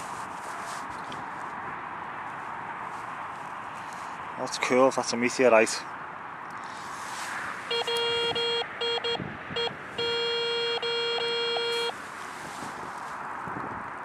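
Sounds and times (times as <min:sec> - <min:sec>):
metal detector buzzy tone: 0:07.7 - 0:11.9.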